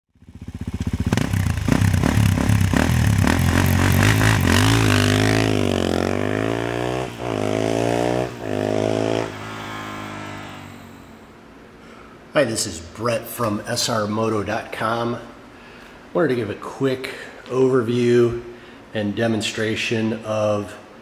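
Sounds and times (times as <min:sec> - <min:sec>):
motorcycle engine revving and accelerating: 0:00.1 - 0:11.2.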